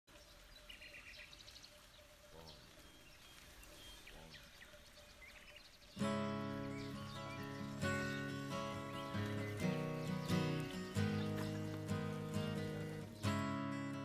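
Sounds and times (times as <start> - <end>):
birds chirping: 0.1 - 14.0
strummed acoustic guitar chord: 6.0 - 14.0.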